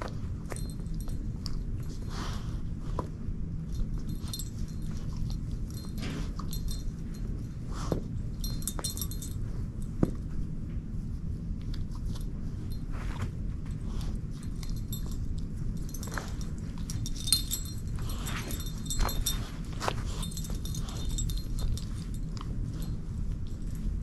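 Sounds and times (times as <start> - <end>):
metallic jingle: 0.3 - 2.2, 3.6 - 10.0, 13.8 - 24.0
dog chewing toy: 11.6 - 24.0.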